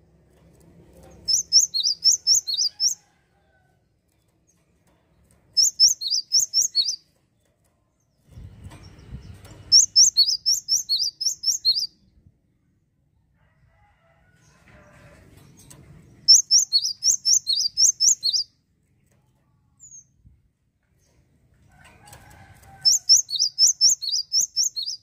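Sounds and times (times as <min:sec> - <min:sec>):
bird singing: 0:01.3 - 0:03.0, 0:05.6 - 0:07.0, 0:09.7 - 0:12.0, 0:16.3 - 0:18.5, 0:22.9 - 0:25.0.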